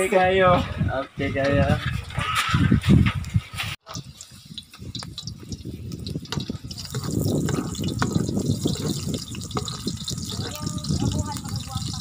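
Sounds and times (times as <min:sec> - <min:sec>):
oil crackling and popping: 0:03.2 - 0:12.0
sizzling in hot oil: 0:03.8 - 0:12.0.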